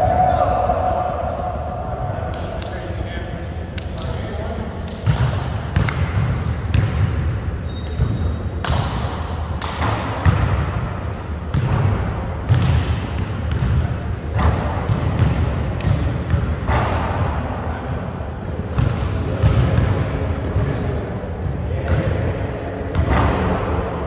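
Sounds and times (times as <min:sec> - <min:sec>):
basketballs bouncing on wooden floor: 0:05.0 - 0:22.2.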